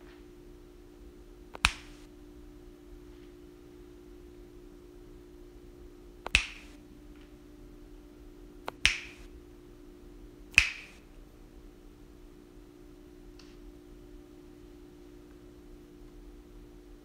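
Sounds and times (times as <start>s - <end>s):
faint steady hum: 0.0s - 17.0s
finger snaps: 1.5s - 2.1s, 6.2s - 6.8s, 8.6s - 9.3s, 10.5s - 11.0s.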